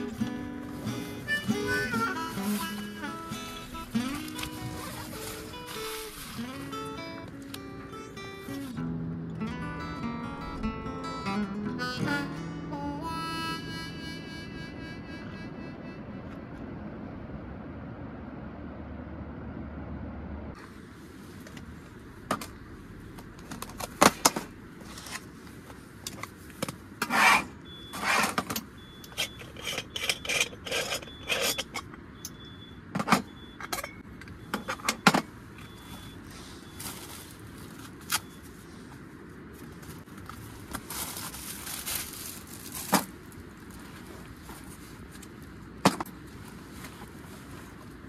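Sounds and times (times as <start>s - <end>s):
rubbing and scraping: 0.0s - 7.1s, 27.0s - 28.4s, 29.2s - 31.9s
plastic bags and fabric rustling: 0.0s - 7.5s, 35.7s - 45.6s.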